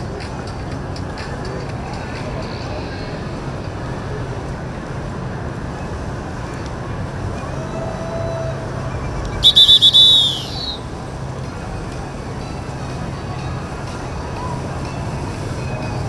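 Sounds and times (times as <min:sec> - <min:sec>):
low rumble of boat engines: 0:00.0 - 0:16.0
shrill whistle chirps: 0:09.0 - 0:10.9.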